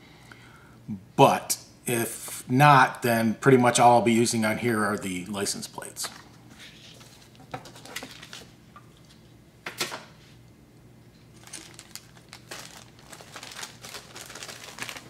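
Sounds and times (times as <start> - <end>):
plastic bags crinkling: 11.3 - 15.0.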